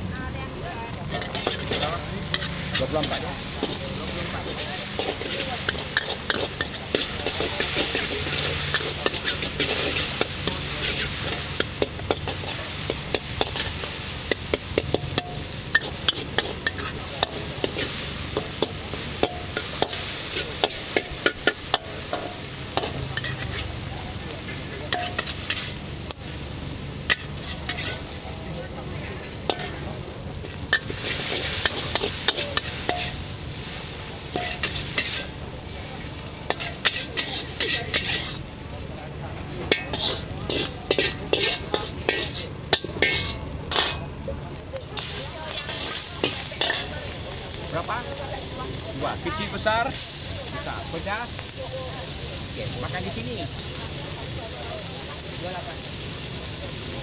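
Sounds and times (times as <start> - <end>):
food sizzling: 0.0 - 57.0
metal spatula clanking on wok: 1.1 - 23.7, 24.4 - 25.8, 29.4 - 29.8, 30.4 - 33.3, 34.3 - 35.3, 36.4 - 38.4, 39.7 - 44.1, 45.0 - 46.9.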